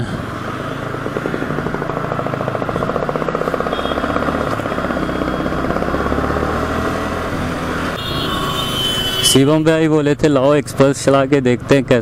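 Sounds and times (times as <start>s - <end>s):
motorcycle engine running: 0.0s - 9.6s.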